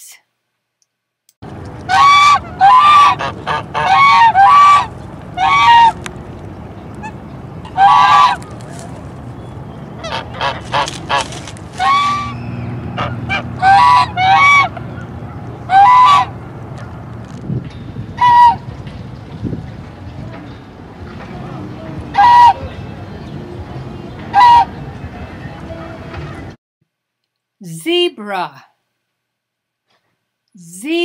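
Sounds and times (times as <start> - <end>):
geese honking: 1.8 - 6.1, 6.9 - 8.9, 9.9 - 16.4, 18.2 - 18.7, 21.2 - 23.3, 24.2 - 25.8.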